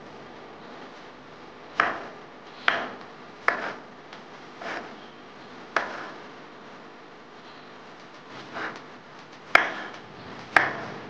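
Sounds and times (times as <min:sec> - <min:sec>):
knife cutting on wooden board: 0:01.8 - 0:03.9, 0:04.6 - 0:05.0, 0:05.8 - 0:06.2, 0:08.3 - 0:08.9, 0:09.6 - 0:11.0.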